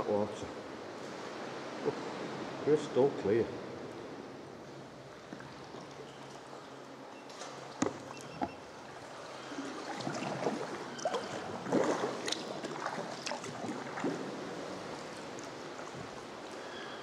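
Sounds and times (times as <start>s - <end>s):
paddle strokes splashing: 5.1s - 17.0s
water lapping against rock: 7.5s - 17.0s.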